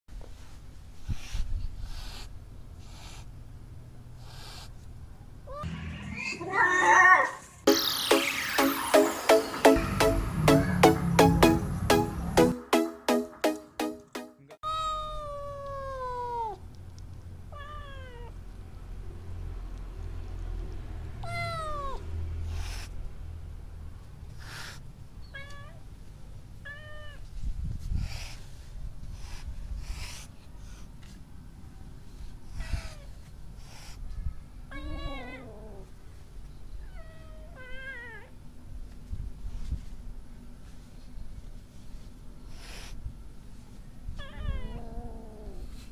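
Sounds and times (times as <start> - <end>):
kitten hissing: 1.0 - 3.4, 4.2 - 4.8, 21.3 - 23.0, 24.3 - 24.9, 27.9 - 30.9, 32.4 - 34.1, 42.5 - 43.0
electronic music: 7.7 - 14.6
cats meowing: 14.6 - 16.6, 21.2 - 22.1, 34.7 - 35.9, 44.1 - 45.8.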